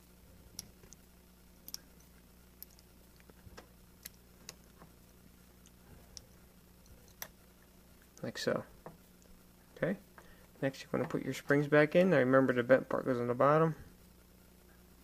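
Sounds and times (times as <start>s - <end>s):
low steady hum: 0.0s - 15.0s
small metal parts clicking: 1.6s - 3.4s, 5.6s - 7.4s.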